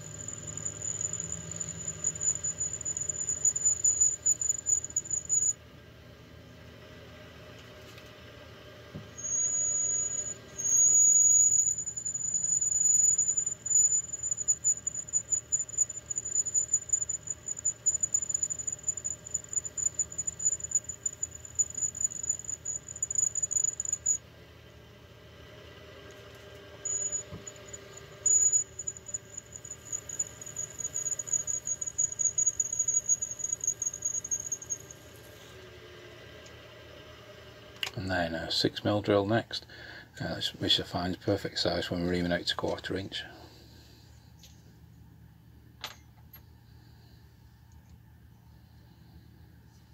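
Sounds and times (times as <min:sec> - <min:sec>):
drill squealing through steel: 0:00.0 - 0:05.6, 0:09.2 - 0:24.2, 0:26.8 - 0:35.5.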